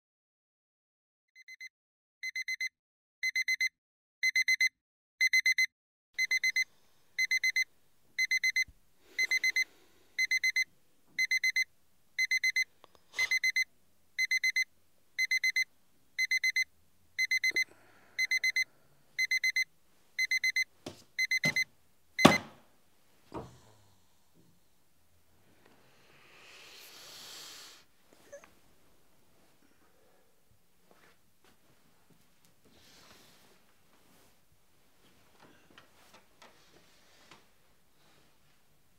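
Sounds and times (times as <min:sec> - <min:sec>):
alarm clock beeping: 0:01.4 - 0:01.6, 0:02.2 - 0:22.5
loud knock: 0:22.2 - 0:22.6.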